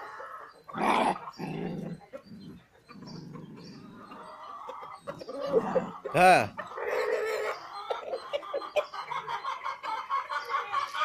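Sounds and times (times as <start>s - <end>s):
puppies growling: 0.0s - 7.6s.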